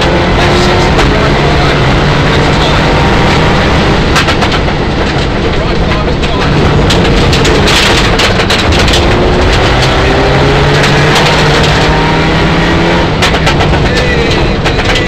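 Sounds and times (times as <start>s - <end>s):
car engine at high revs: 0.0s - 15.0s
gravel clattering on car underside: 4.1s - 12.0s, 13.1s - 15.0s.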